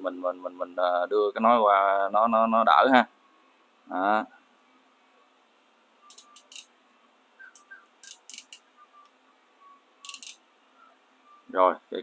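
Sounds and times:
crimping pliers clicking: 6.1s - 6.7s, 7.6s - 8.6s, 10.0s - 10.4s.

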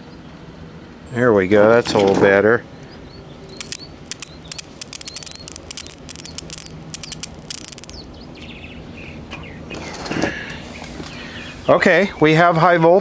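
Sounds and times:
high-pitched electronic whine: 0.0s - 1.8s, 2.6s - 8.0s
high-voltage spark crackling: 3.6s - 8.0s.

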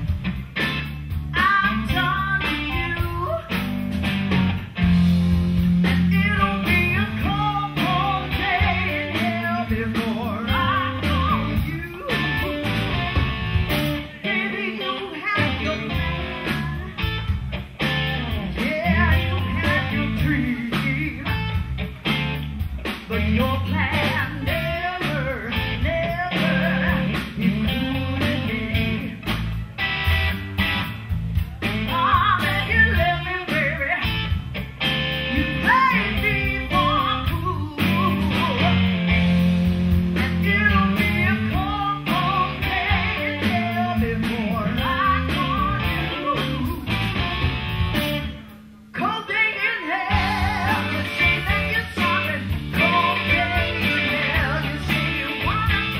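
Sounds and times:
blues-rock band playing: 0.0s - 55.9s
electric guitar: 0.0s - 55.9s
person singing: 1.4s - 3.6s, 5.9s - 12.6s, 14.0s - 17.1s, 18.4s - 21.5s, 23.1s - 29.2s, 31.6s - 34.3s, 35.3s - 39.3s, 40.2s - 47.0s, 49.0s - 55.9s.

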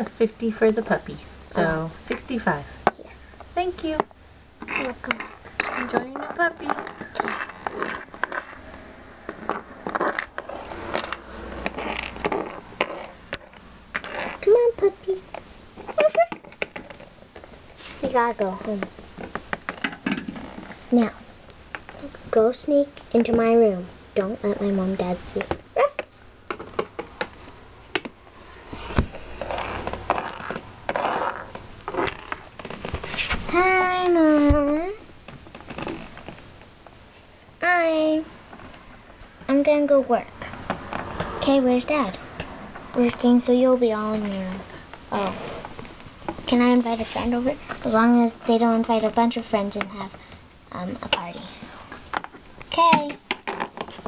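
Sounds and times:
rustling handling noise: 4.6s - 21.1s, 24.9s - 37.3s
plastic toys knocking: 18.7s - 20.7s, 26.5s - 27.3s, 52.1s - 54.0s.

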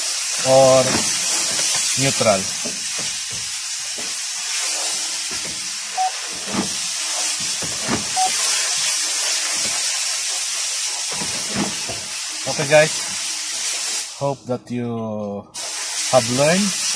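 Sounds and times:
steady cabin hiss: 0.0s - 16.9s
brief beeps: 6.0s - 6.2s, 8.2s - 8.4s.

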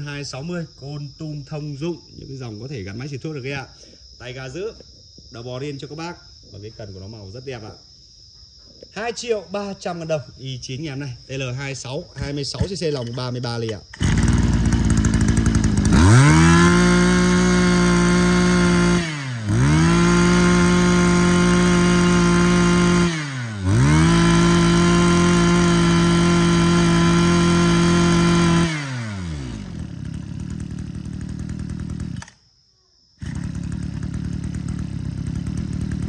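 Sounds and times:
brush cutter engine revving: 12.2s - 32.4s, 33.2s - 36.0s.

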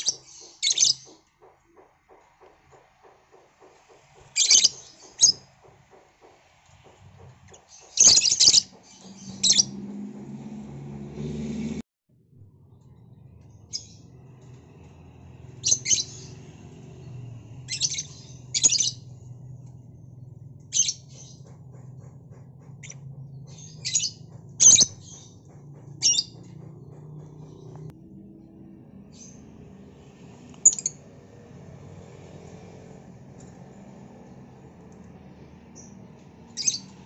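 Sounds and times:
lovebirds shrill chirping: 7.6s - 9.7s.

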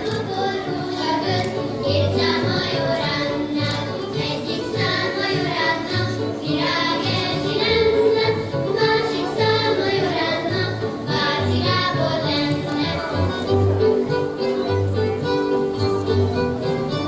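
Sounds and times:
children singing: 0.0s - 13.1s.

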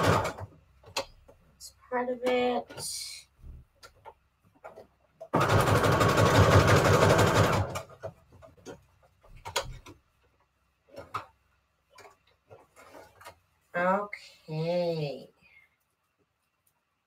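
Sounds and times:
sewing machine stitching: 0.0s - 0.5s, 5.3s - 8.1s.

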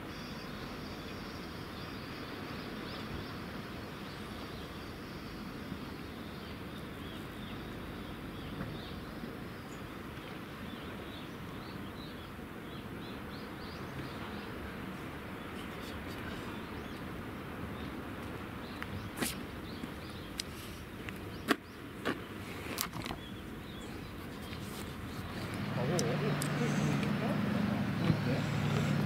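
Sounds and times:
insect drone: 0.0s - 10.0s.

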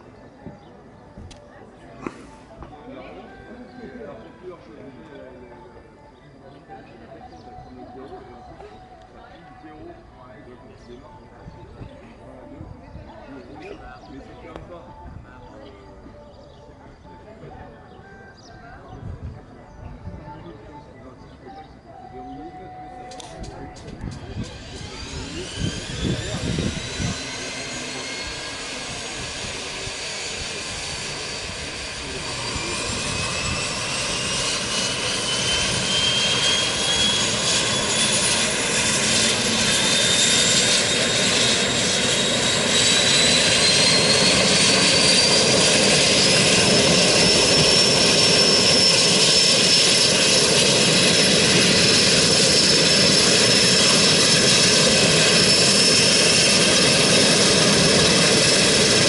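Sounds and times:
turboprop engine spooling up: 23.2s - 59.0s.

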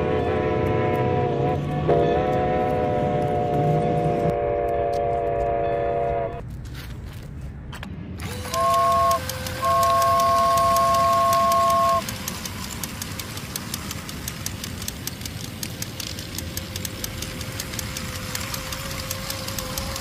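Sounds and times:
horn-like chord: 0.0s - 6.4s
small motor hum: 8.2s - 20.0s
toy train rumbling on concrete: 8.2s - 20.0s
light clicking: 8.4s - 20.0s.

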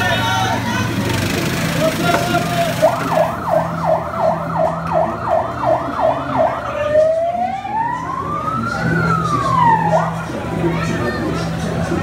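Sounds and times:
fire engine siren: 2.8s - 10.5s.

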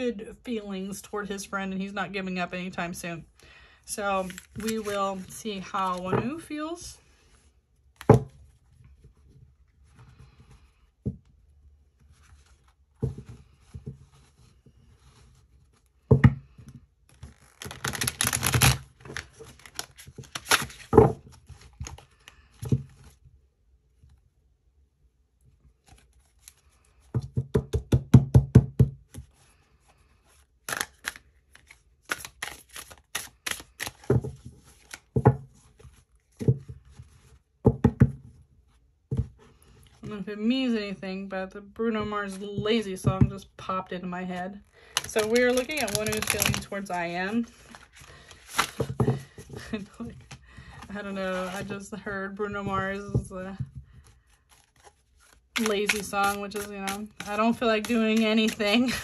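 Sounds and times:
cards being shuffled: 4.2s - 6.4s, 17.1s - 23.2s, 25.8s - 27.2s, 30.2s - 37.4s, 44.6s - 51.8s, 52.6s - 59.0s.

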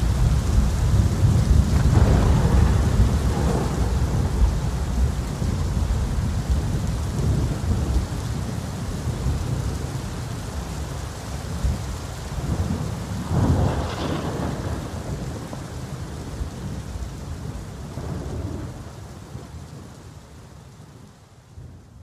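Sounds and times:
thunder rumbling: 0.0s - 10.7s, 11.4s - 19.9s
heavy pouring rain: 0.0s - 22.0s
thunder clap: 0.8s - 4.9s, 12.5s - 16.8s.

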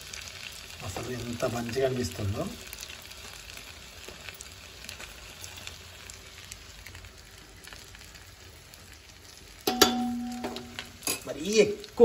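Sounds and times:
faint oil crackles: 0.0s - 12.0s
fish sizzling in oil: 0.0s - 12.0s.

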